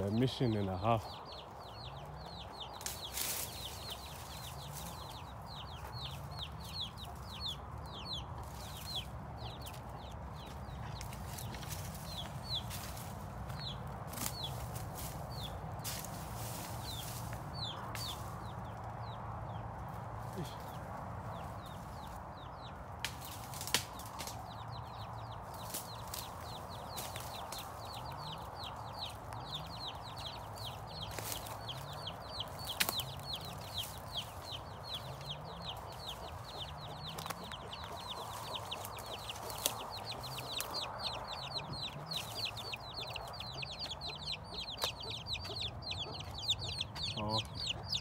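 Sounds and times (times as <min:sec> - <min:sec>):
chickens clucking: 0:00.0 - 0:48.0
chicks cheeping: 0:00.0 - 0:48.0.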